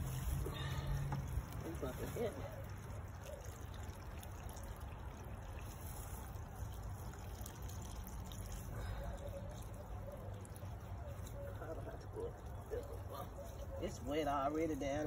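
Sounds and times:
water sprinkling on soil and leaves: 0:00.0 - 0:15.0.

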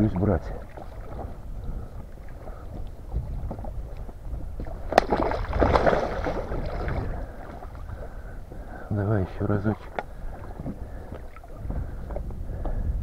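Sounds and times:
wind rumble on microphone: 0:00.0 - 0:13.0
fish splashing in water: 0:00.6 - 0:08.4
wooden baton smacking fish: 0:04.6 - 0:07.1.

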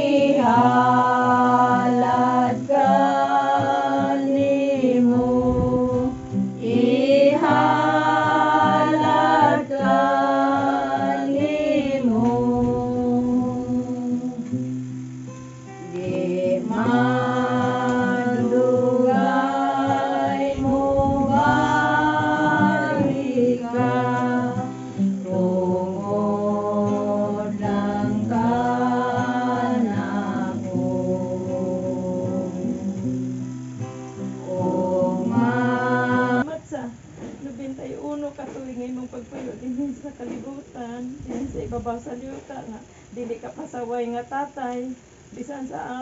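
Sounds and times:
person singing: 0:00.0 - 0:14.8, 0:15.8 - 0:36.5
guitar chords: 0:00.0 - 0:36.5.

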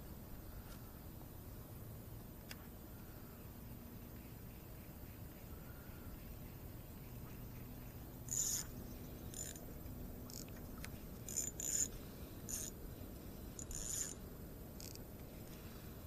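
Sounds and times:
fishing reel whirring: 0:08.2 - 0:12.8, 0:13.4 - 0:15.1.

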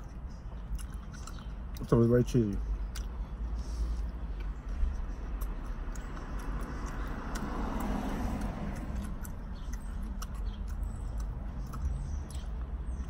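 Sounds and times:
person chewing food: 0:00.0 - 0:01.9, 0:02.8 - 0:13.0
vehicle passing outside: 0:03.2 - 0:13.0.

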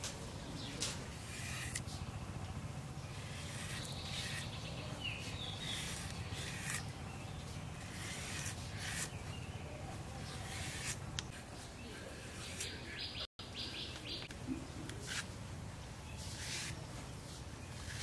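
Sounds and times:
bird chirps: 0:11.6 - 0:14.9.

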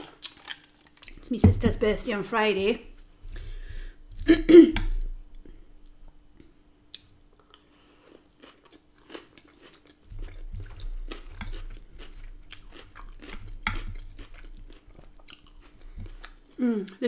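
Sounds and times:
close chewing with wet crunching: 0:06.9 - 0:17.0.

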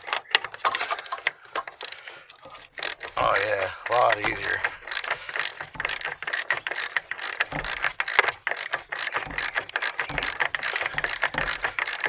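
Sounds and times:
socket ratchet clicking rapidly: 0:02.8 - 0:12.0.

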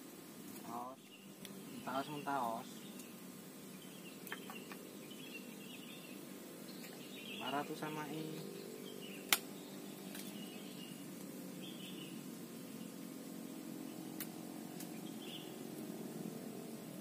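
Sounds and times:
steady low hum: 0:00.0 - 0:17.0
faint bird chirps: 0:00.6 - 0:11.0, 0:11.6 - 0:13.0, 0:14.8 - 0:15.6.

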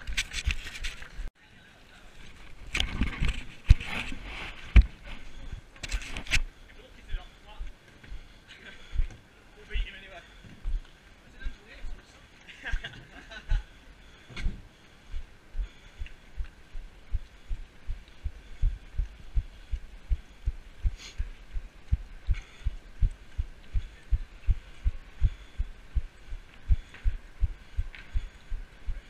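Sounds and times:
faint hiss: 0:16.2 - 0:29.0.

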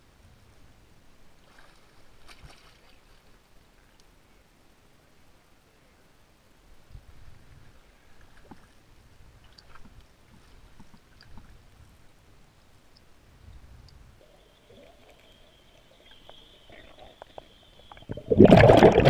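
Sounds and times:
underwater breath bubbles rumbling: 0:14.2 - 0:19.0.

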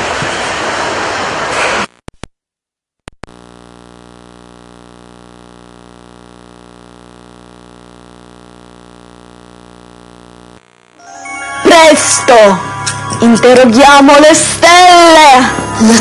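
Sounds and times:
electrical mains hum: 0:03.1 - 0:11.0.

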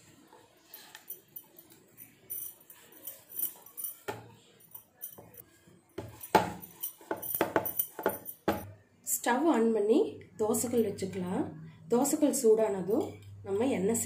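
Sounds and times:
bangles clinking: 0:00.7 - 0:05.4, 0:06.0 - 0:08.7.

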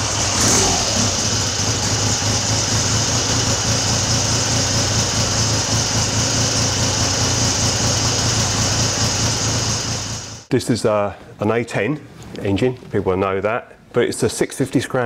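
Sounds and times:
motorcycle engine idling: 0:00.0 - 0:10.4.

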